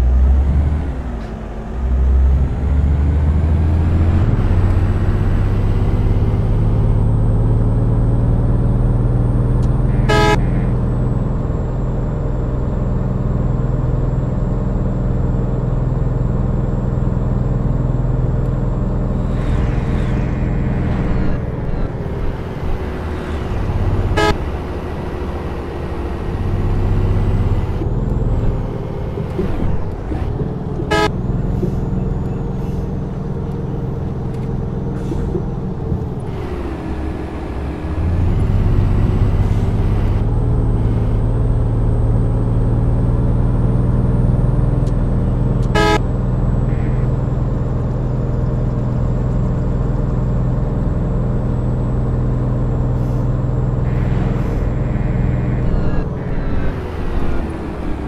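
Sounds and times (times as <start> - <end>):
vehicle engine running: 0.0 - 58.0
horn toots: 9.7 - 10.9, 19.1 - 24.6, 30.9 - 31.5, 45.6 - 47.3, 53.8 - 58.0.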